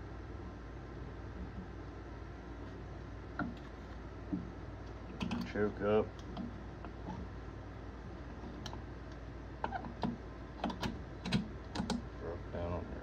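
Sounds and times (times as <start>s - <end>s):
steady low hum: 0.0s - 13.0s
small parts clicking and tapping: 4.8s - 7.2s, 8.6s - 12.0s.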